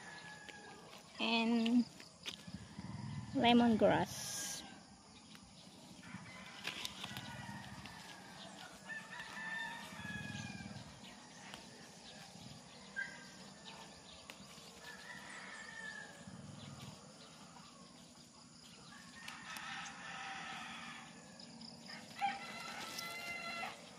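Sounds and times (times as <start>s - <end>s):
faint rooster crowing: 0.0s - 1.1s, 2.4s - 3.6s, 6.0s - 14.0s, 14.8s - 23.9s
plants rustling: 6.4s - 10.0s.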